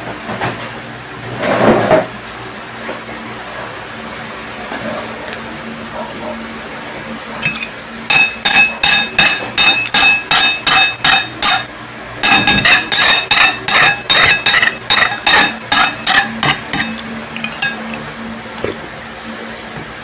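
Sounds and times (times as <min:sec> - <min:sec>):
ringing taps on a dish: 0:07.4 - 0:17.8.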